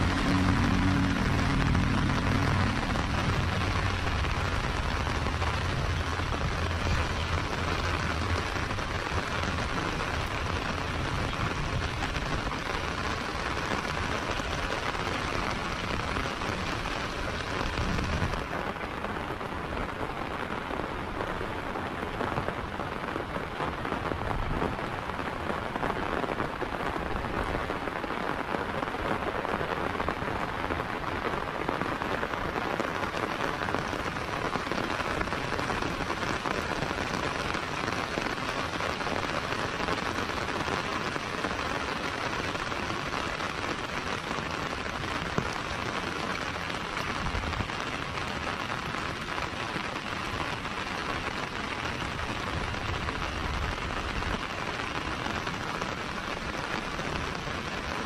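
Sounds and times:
low rumble: 0:00.0 - 0:12.5
heavy rain on paving: 0:00.0 - 0:58.0.

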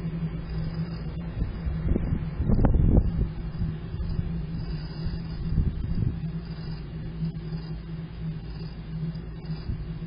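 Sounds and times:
steady low rumble: 0:00.0 - 0:10.0
wind buffeting microphone: 0:00.6 - 0:06.7.

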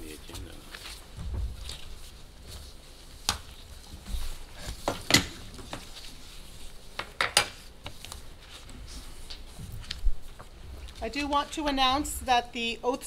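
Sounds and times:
objects handled on desks: 0:00.7 - 0:11.0.

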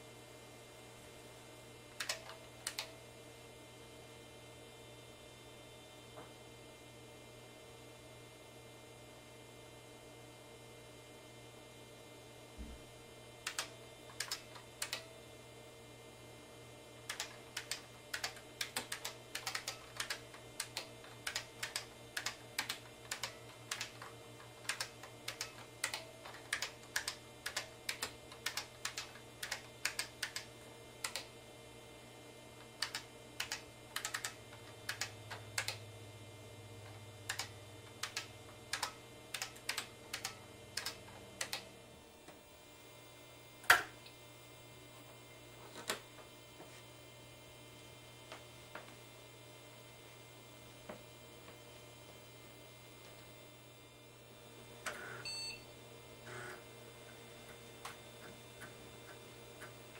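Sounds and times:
steady low hum: 0:00.0 - 0:59.9
keyboard typing clacks: 0:02.0 - 0:02.9, 0:13.5 - 0:15.1, 0:17.1 - 0:31.3, 0:32.8 - 0:35.8, 0:37.2 - 0:41.7.

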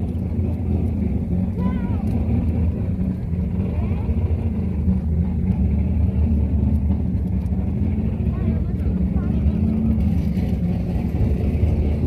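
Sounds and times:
car engine idling: 0:00.0 - 0:12.0
faint voices: 0:07.8 - 0:10.5.

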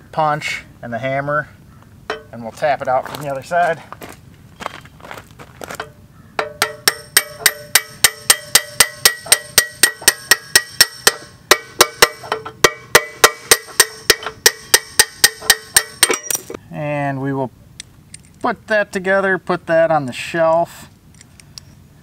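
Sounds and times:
hammer striking metal punch: 0:02.1 - 0:02.3, 0:05.8 - 0:16.6.

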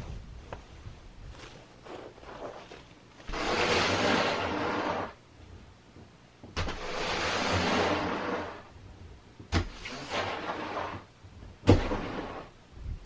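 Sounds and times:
snow sliding down roof: 0:00.0 - 0:05.2, 0:06.6 - 0:08.8, 0:09.7 - 0:11.1, 0:11.7 - 0:12.6.

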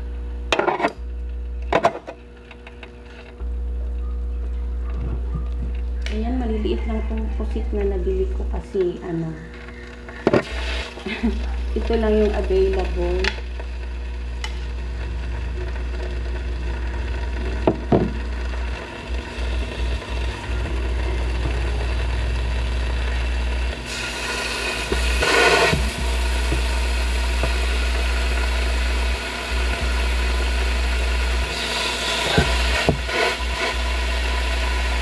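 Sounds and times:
squid sizzling on a griddle: 0:09.6 - 0:35.0
steady low rumble: 0:11.1 - 0:31.4.

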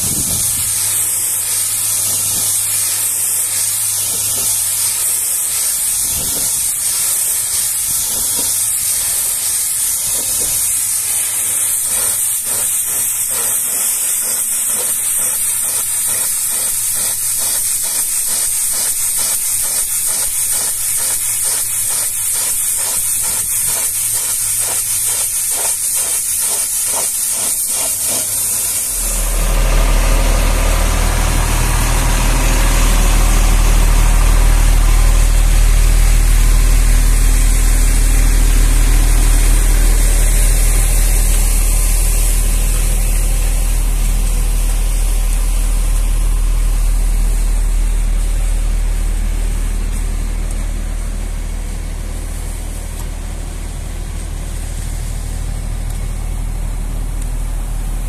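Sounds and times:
pressure washer spraying metal: 0:00.0 - 0:58.0
truck engine idling: 0:28.3 - 0:58.0.

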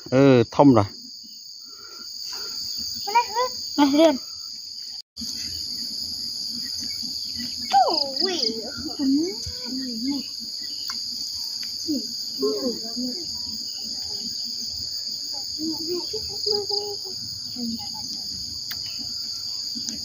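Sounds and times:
insects chirping: 0:00.0 - 0:20.0
faint children chattering: 0:07.6 - 0:20.0.

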